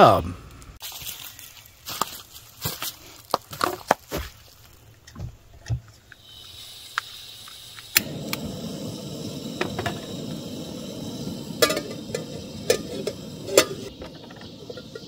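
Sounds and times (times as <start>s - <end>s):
gas burner hissing: 6.1s - 15.0s
stove igniter click: 6.9s - 15.0s
metal pot clanking on stove: 11.6s - 15.0s.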